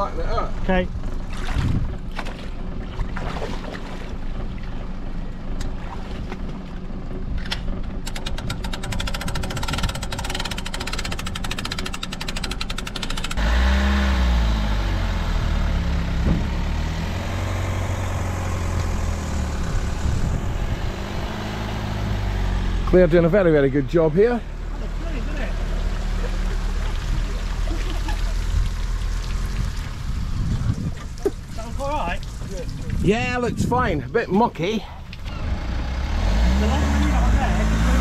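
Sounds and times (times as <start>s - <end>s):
car engine droning: 0.0s - 32.0s, 35.0s - 38.0s
water sloshing: 1.2s - 6.9s
fast ticking: 8.1s - 13.4s.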